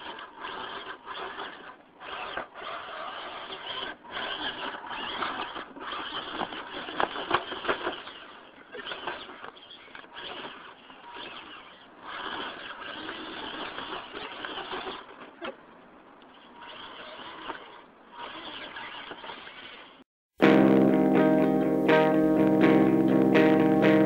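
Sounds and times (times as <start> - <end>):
rc car motor and gears whirring: 0.0 - 20.0
loud guitar music: 20.4 - 24.0.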